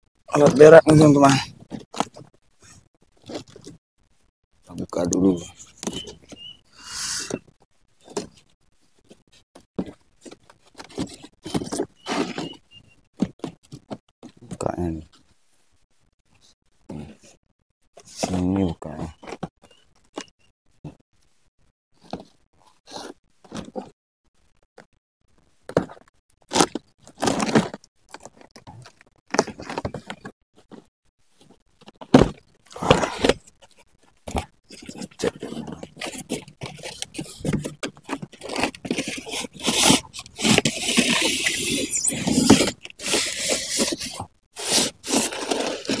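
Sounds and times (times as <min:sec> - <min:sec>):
styrofoam sliding against cardboard: 0:06.7 - 0:07.4, 0:35.3 - 0:46.0
knife slitting cardboard box tape: 0:34.8 - 0:46.0.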